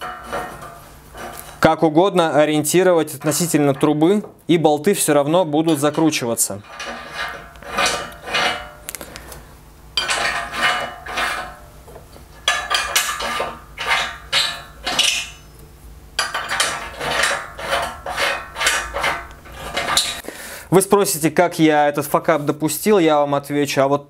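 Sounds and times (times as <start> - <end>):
metal bolts clinking: 12.4 - 15.6, 16.2 - 20.2.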